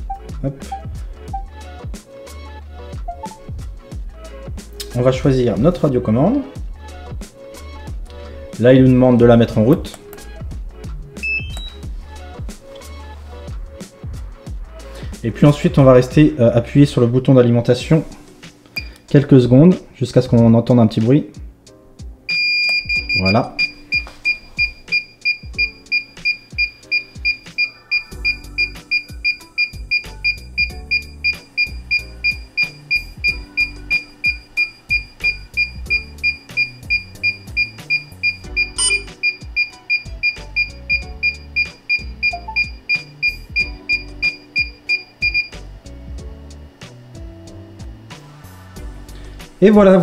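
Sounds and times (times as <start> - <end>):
background music: 0.0 - 50.0
short high beeps: 22.3 - 45.6.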